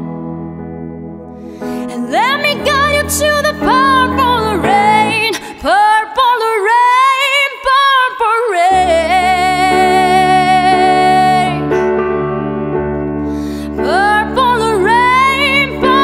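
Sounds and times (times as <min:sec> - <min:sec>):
piano: 0:00.0 - 0:16.0
woman singing wordless melody: 0:01.6 - 0:11.9, 0:13.7 - 0:16.0.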